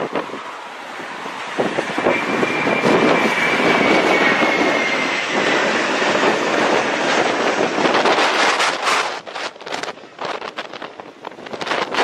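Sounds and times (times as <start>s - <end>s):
jet airliner engines rushing: 0.0s - 12.0s.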